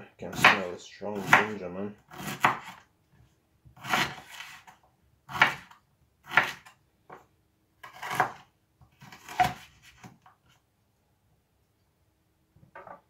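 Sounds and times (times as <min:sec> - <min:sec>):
knife chopping on wooden board: 0:00.3 - 0:02.8, 0:03.8 - 0:04.7, 0:05.3 - 0:06.7, 0:07.8 - 0:10.2.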